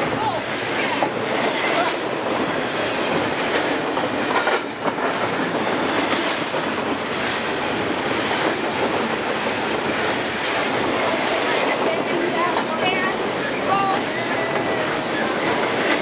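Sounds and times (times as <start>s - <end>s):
freight train wheels on rails: 0.0s - 16.0s.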